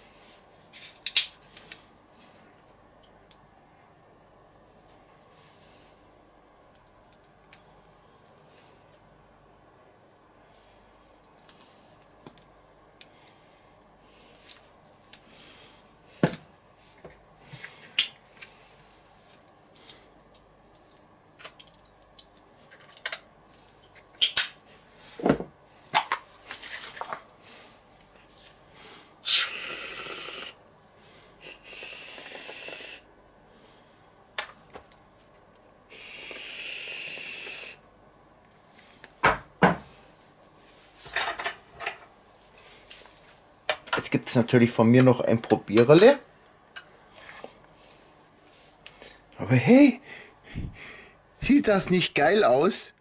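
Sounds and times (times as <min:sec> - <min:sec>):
aerosol whipped cream hissing: 0:29.2 - 0:30.6, 0:31.4 - 0:33.1, 0:35.9 - 0:37.8.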